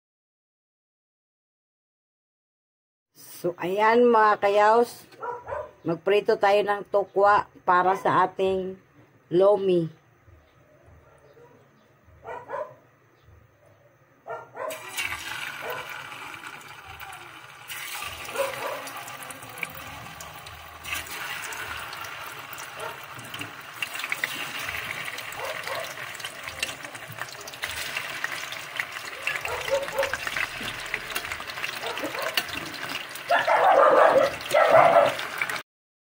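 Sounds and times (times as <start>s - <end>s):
tofu sizzling in hot oil: 14.7s - 33.3s, 34.3s - 35.6s.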